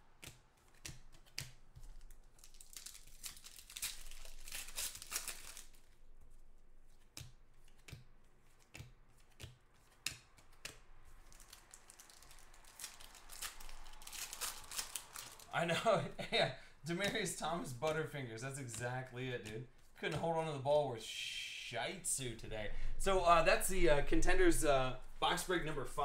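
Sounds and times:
foil wrappers crinkling and tearing: 1.7 - 7.0, 11.0 - 16.3.

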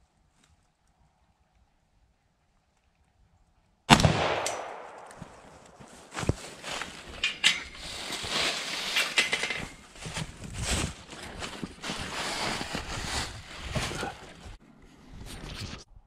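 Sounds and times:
footsteps in dry leaves: 5.2 - 14.6.

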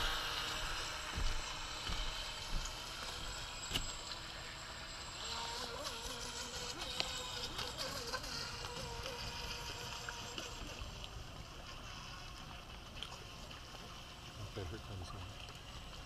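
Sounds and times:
water wash: 0.0 - 5.1
rc boat motor whine: 0.0 - 16.0.

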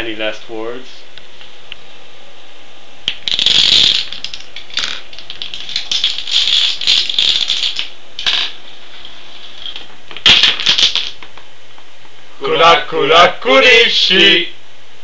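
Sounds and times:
dominoes toppling: 3.1 - 8.6, 9.7 - 11.3.

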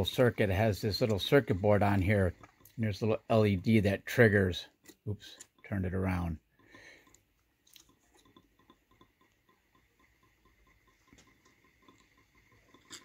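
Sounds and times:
pulse motor ticking: 5.4 - 12.9.

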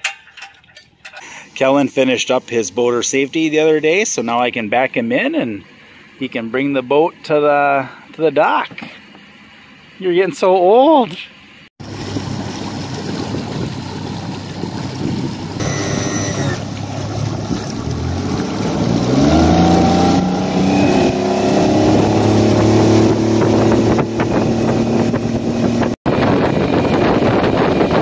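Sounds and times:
outboard motor revving: 11.8 - 28.0
water rushing past hull: 11.8 - 28.0.

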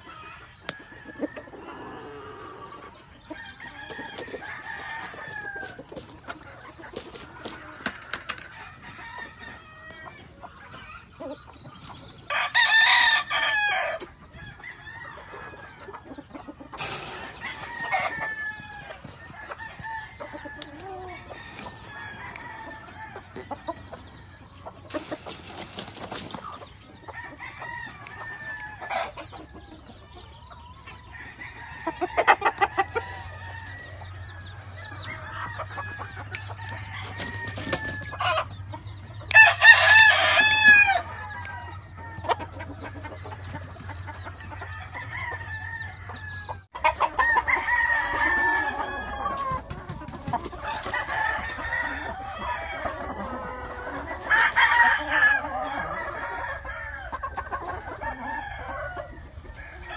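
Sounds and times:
quieter bird calls: 0.0 - 47.1
rooster crowing: 3.4 - 5.8, 12.3 - 15.8, 16.8 - 23.4, 34.8 - 38.5, 39.3 - 42.6, 44.6 - 49.5, 58.0 - 59.9.

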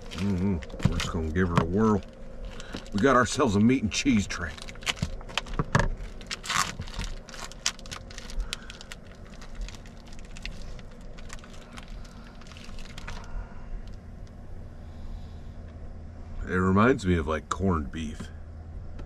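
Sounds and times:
plastic pouch crinkling: 0.0 - 14.0
steady low hum: 0.0 - 19.0.

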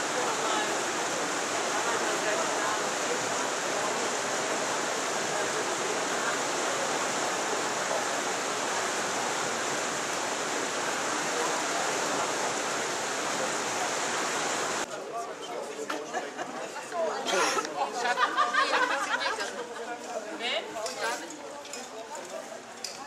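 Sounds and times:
steady rushing hiss: 0.0 - 14.9.

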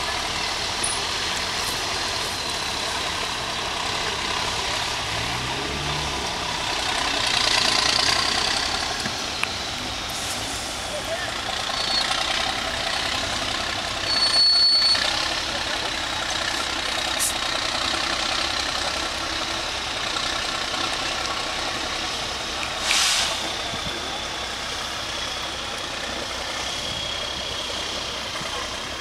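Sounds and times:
distant diesel truck engine: 0.0 - 29.0
high whistle-like tone: 11.7 - 12.2, 14.0 - 15.2
brief hiss: 22.8 - 23.6.

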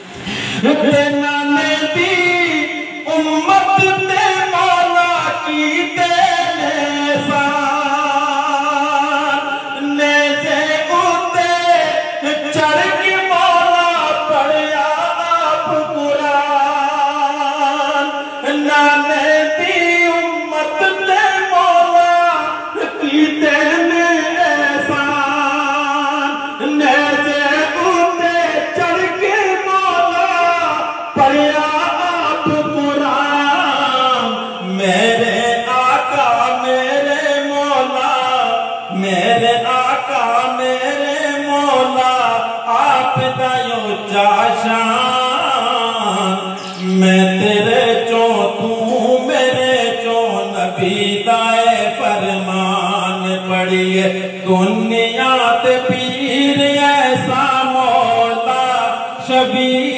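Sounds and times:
man singing unaccompanied: 0.6 - 59.9.

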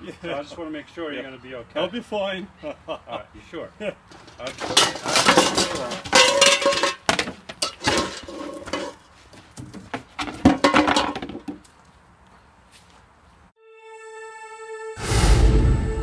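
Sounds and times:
metal pots clattering: 4.1 - 9.0, 10.2 - 11.5.

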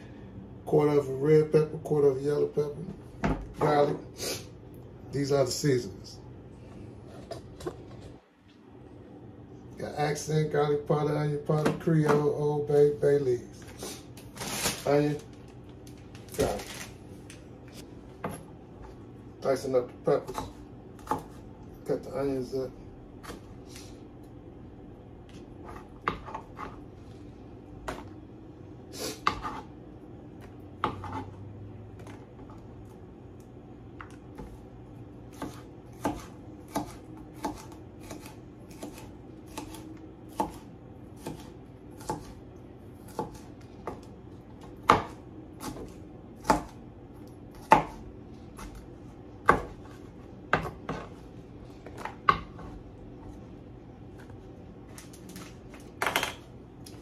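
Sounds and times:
knife chopping on plastic board: 11.5 - 12.4, 20.1 - 21.5, 25.3 - 26.8, 29.2 - 29.7, 30.4 - 31.4, 34.0 - 34.6, 35.3 - 42.4, 43.0 - 46.8, 47.5 - 51.2, 51.8 - 53.4.

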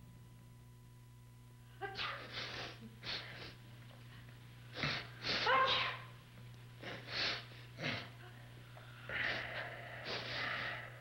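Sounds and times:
steady low hum: 0.0 - 11.0
person sneezing: 1.9 - 3.6, 4.7 - 6.0.

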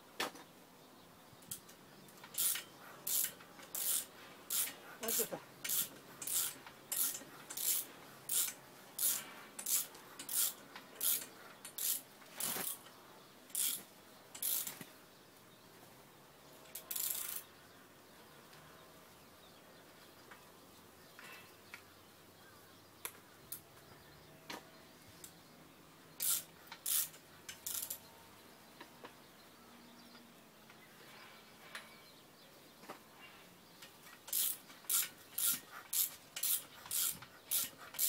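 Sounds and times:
ratchet wrench rasping: 2.2 - 12.8, 13.5 - 14.8, 16.7 - 17.4, 26.2 - 28.0, 34.2 - 38.0.

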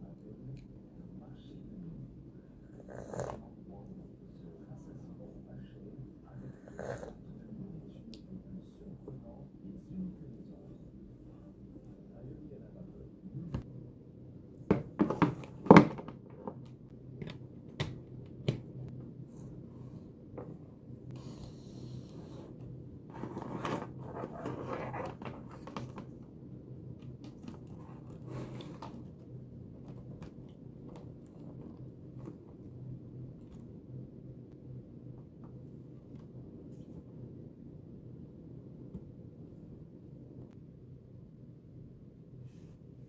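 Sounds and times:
steady low hum: 0.0 - 43.0
rustling and scraping of cables: 22.0 - 26.3, 26.9 - 33.8.

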